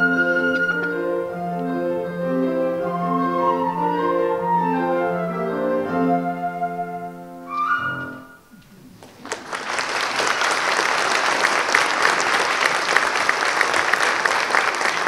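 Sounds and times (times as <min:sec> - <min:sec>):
flute and piano duet: 0:00.0 - 0:09.0
audience applause: 0:08.6 - 0:15.0.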